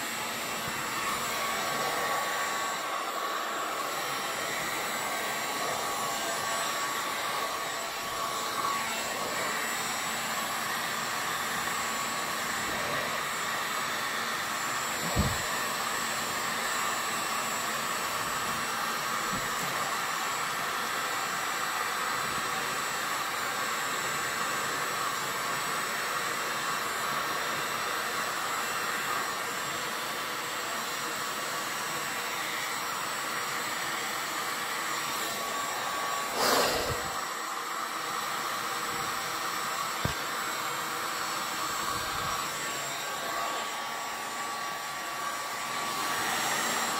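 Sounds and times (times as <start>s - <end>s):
heat gun blowing hiss: 0.0s - 20.5s, 33.5s - 46.9s
brief thump: 15.1s - 15.5s.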